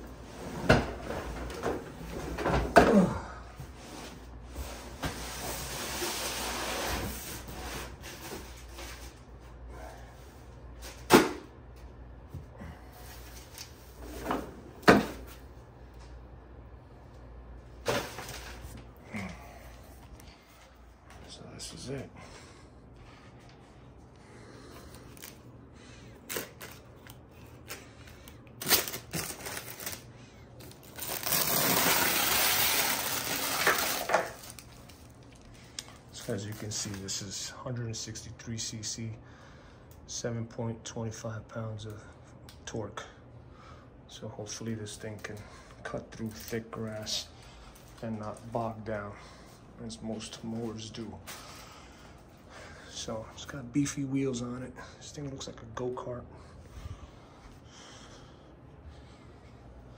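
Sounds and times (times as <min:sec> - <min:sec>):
plastic bag crinkling: 0:26.2 - 0:36.7.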